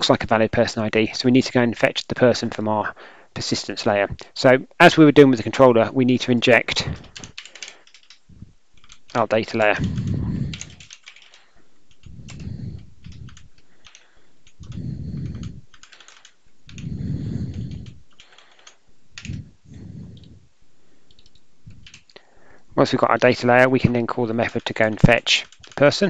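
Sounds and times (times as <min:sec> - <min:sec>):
typing on computer keyboard: 0:06.9 - 0:08.2, 0:08.8 - 0:19.4, 0:21.1 - 0:22.2, 0:24.3 - 0:26.0
low muffled swells: 0:14.6 - 0:15.8.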